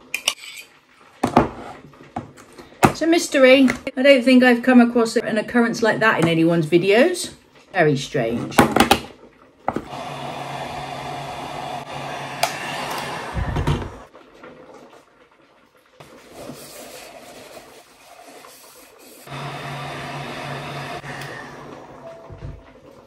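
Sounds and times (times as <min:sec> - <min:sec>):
heat gun blowing hum: 0:09.9 - 0:14.0, 0:19.3 - 0:21.8.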